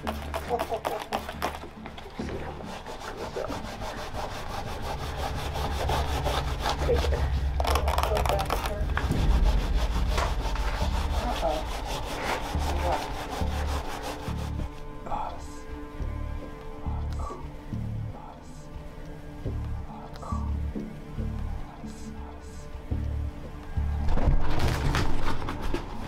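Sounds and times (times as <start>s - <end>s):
paper towel scrubbing wood: 0.0s - 14.7s.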